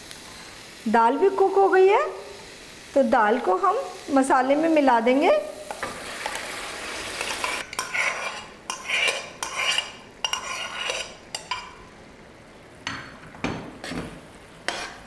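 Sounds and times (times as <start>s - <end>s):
soft sizzle: 0.0s - 15.0s
steel ladle scraping and knocking pan: 7.2s - 11.8s, 12.9s - 15.0s.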